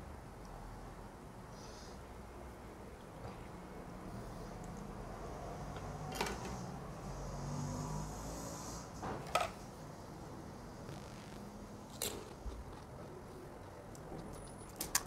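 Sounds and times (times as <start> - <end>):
steady low hum: 9.6 - 15.0.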